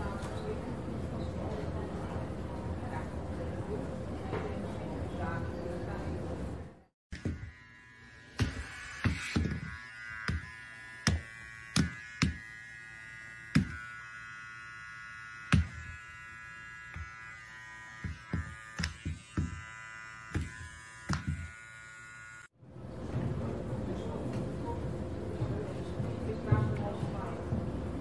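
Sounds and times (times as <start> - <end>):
electric gadget buzzing: 7.1 - 22.6.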